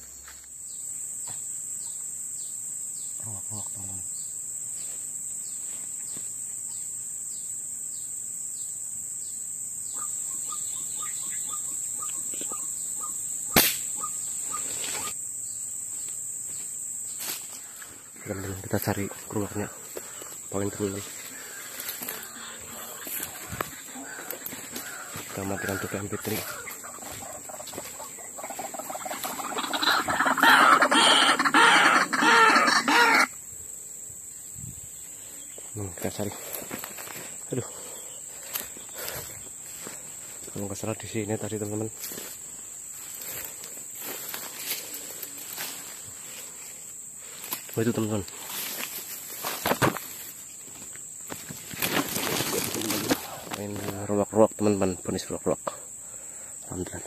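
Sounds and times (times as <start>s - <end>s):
high insect drone: 0.0s - 57.0s
bird-like animal calls from a caller: 9.9s - 15.2s, 18.3s - 33.4s.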